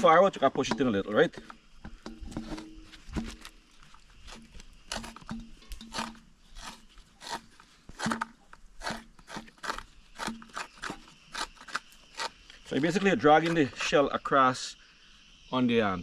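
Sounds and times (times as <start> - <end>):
coconut scraping on grater: 4.2 - 13.6.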